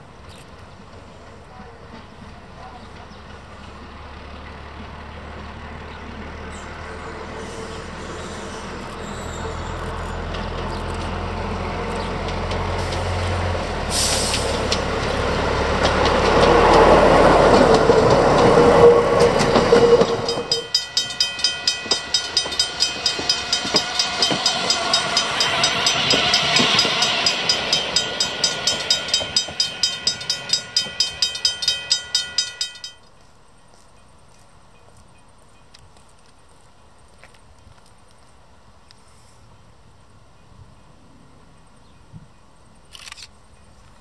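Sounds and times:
railcar diesel engine passing: 0.0s - 35.7s
brief hiss: 13.9s - 14.7s
level-crossing bell ringing: 19.5s - 33.0s.

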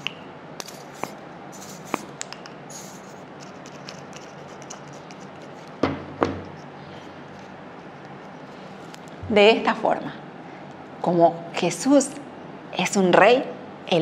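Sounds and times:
bottle knocking on wooden table: 5.8s - 6.4s.

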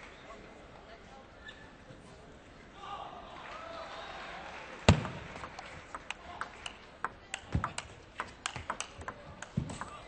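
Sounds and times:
table tennis ball clicking: 5.4s - 10.0s.

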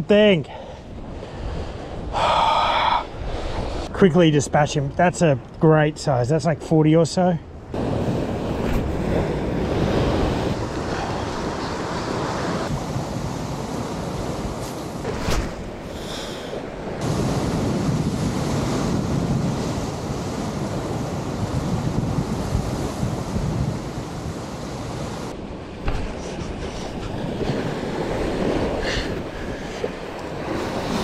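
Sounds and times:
ocean surf against rocks: 0.0s - 31.0s
wind buffeting microphone: 7.6s - 31.0s.

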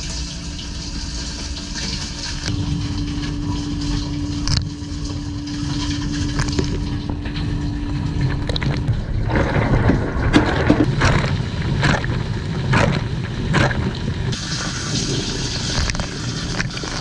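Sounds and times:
dishwasher low rumble: 0.0s - 17.0s
dishwasher water spray splashing: 10.5s - 17.0s.

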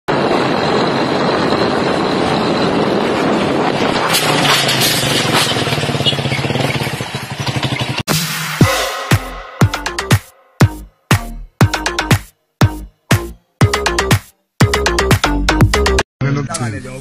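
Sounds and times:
rushing road noise: 0.1s - 8.5s
small motorcycle engine running hard: 0.2s - 8.1s
swoosh effect falling in pitch: 8.1s - 10.6s.

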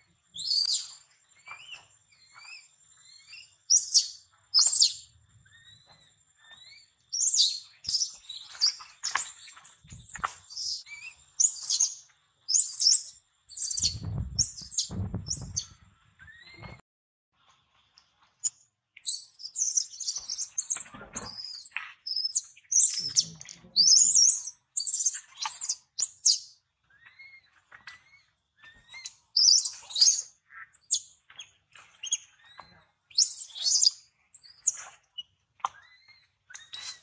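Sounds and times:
baby monkey squealing: 12.6s - 15.7s.

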